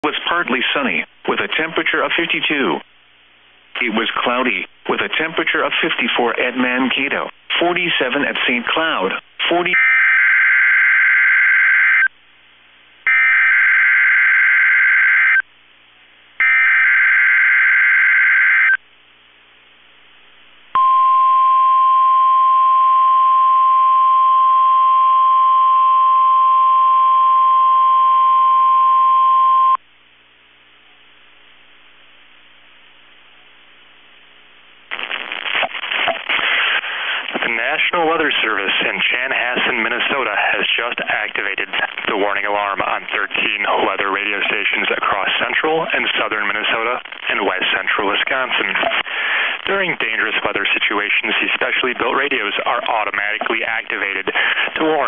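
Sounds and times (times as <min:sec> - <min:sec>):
steady warning alarm tone: 0:09.8 - 0:12.1, 0:13.1 - 0:15.4, 0:16.4 - 0:18.8.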